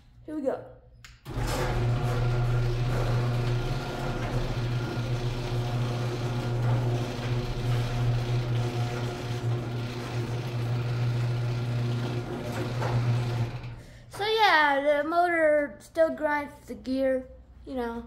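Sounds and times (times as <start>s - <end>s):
garage door opener motor humming: 1.2s - 14.1s.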